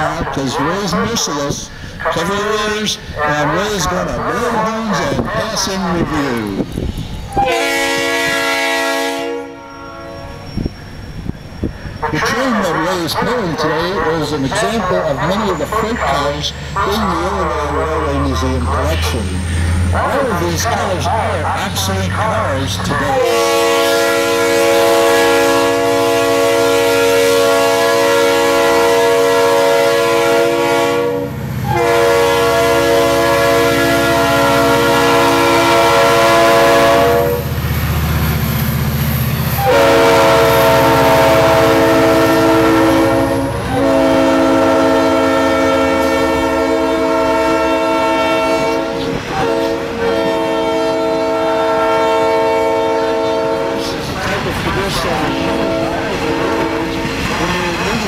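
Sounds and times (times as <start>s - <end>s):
locomotive air horn chord: 7.4s - 10.5s, 23.2s - 37.5s, 39.6s - 54.0s, 55.3s - 57.1s
freight cars rolling by: 9.8s - 23.3s
diesel engine rumble: 10.4s - 26.9s, 30.6s - 51.1s.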